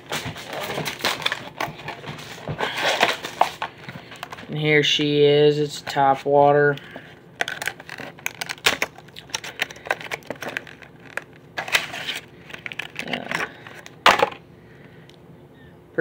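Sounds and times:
stiff plastic packaging crinkling: 0.0 - 4.5, 6.7 - 14.4.

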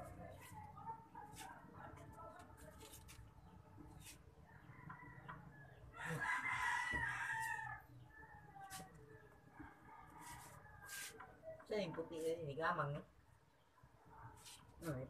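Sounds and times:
rooster crowing: 4.5 - 8.8.

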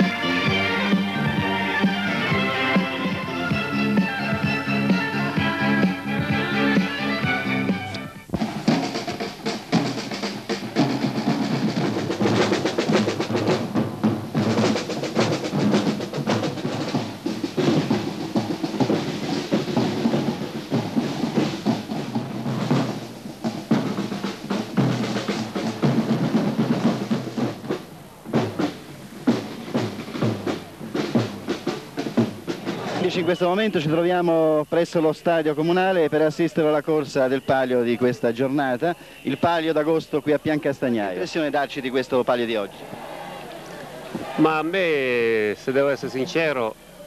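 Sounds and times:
snare and bass drums marching: 0.0 - 46.8.

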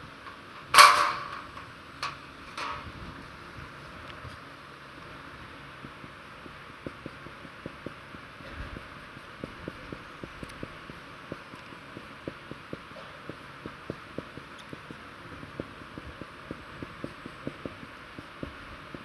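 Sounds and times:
steady hiss: 0.0 - 19.0
marker tapping on whiteboard: 5.8 - 19.0.

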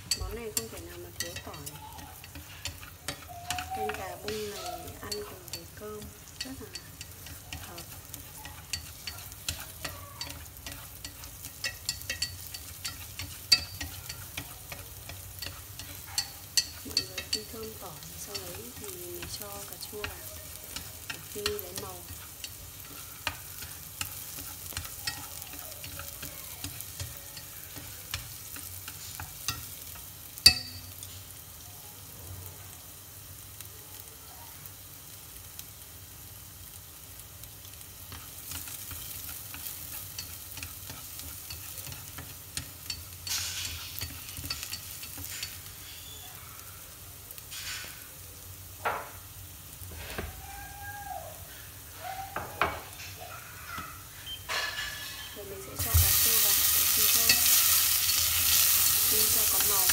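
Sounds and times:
garlic frying faint sizzle: 0.0 - 59.9.

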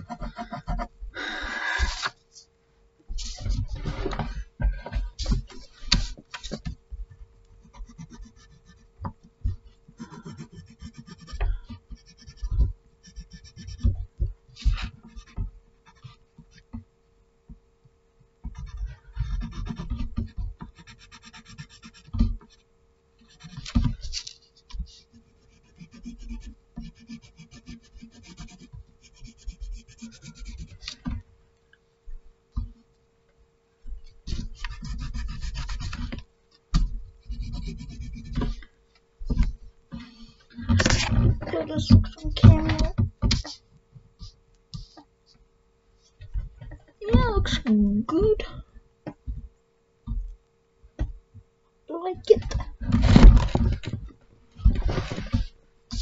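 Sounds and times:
pencil scratching on paper: 0.0 - 0.9, 7.6 - 8.9, 10.0 - 13.9, 14.6 - 16.2, 18.5 - 22.6, 23.2 - 31.0, 34.3 - 36.2, 37.2 - 38.6
faint steady hum: 0.0 - 56.0.

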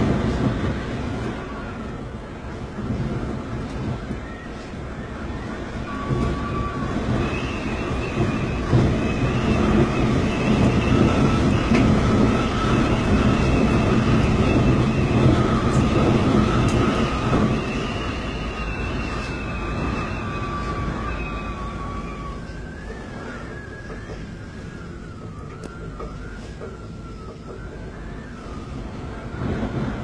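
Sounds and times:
heavy rain rushing: 0.0 - 30.0
high whistle of wind: 0.0 - 30.0.

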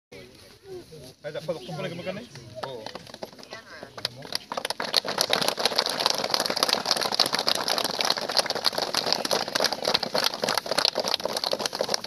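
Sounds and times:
crowd clapping: 2.4 - 12.0.

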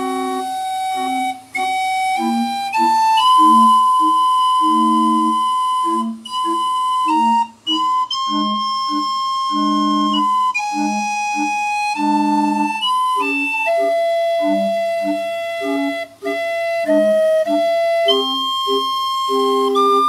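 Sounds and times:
steam calliope playing a tune: 0.0 - 20.0.

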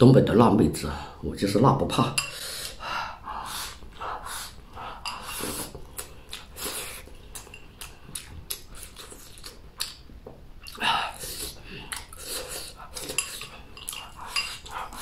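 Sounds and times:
person sniffing and breathing: 2.3 - 5.8, 6.5 - 7.1, 10.8 - 13.1
person chewing: 3.5 - 15.0.

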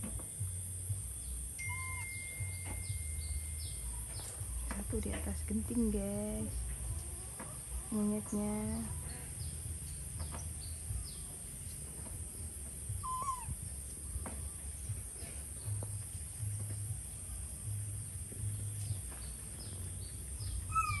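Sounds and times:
low pulsing rumble: 0.0 - 21.0
falling whistled calls: 1.6 - 3.5, 13.0 - 13.6, 20.5 - 21.0.

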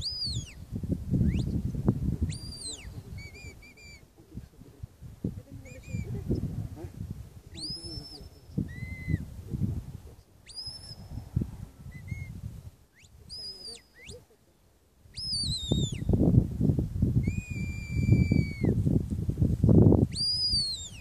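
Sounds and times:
wind rumbling on microphone: 0.0 - 14.4, 15.0 - 21.0
shrill whistled commands: 2.3 - 4.0, 7.6 - 9.2, 10.5 - 11.0, 12.9 - 14.2, 15.2 - 16.1, 17.2 - 18.7, 20.1 - 21.0.

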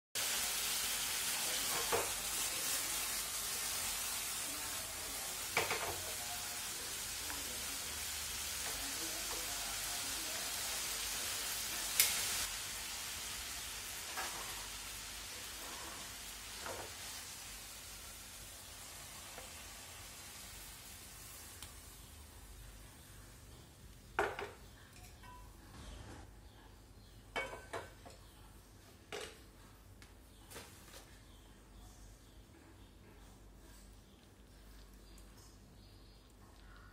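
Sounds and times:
vegetables sizzling in a frying pan: 0.2 - 23.5.

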